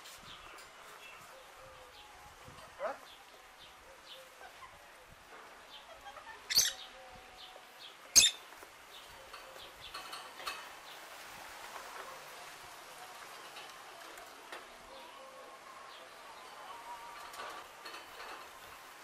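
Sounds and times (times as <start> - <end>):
faint bird chirps: 6.0 - 7.0
parrot sharp high calls: 6.2 - 6.9, 8.2 - 8.4.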